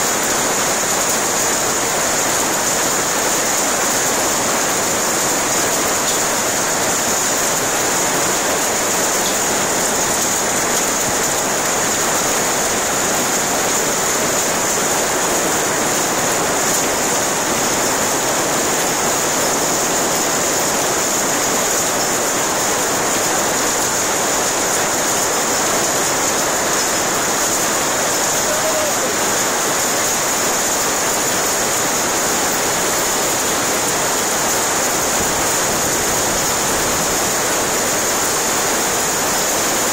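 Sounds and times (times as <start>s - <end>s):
hail and rain on plastic roof: 0.0s - 39.9s.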